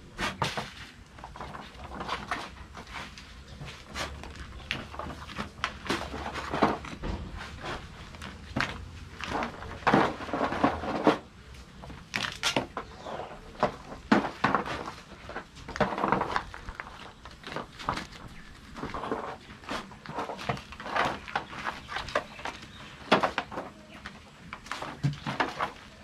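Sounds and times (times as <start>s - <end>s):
stones knocking and clattering: 3.6s - 23.7s.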